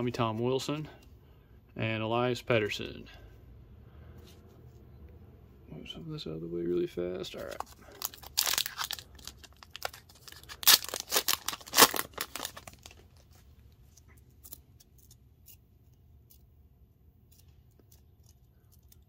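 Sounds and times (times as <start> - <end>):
wrapper tearing and crinkling: 7.4 - 13.3.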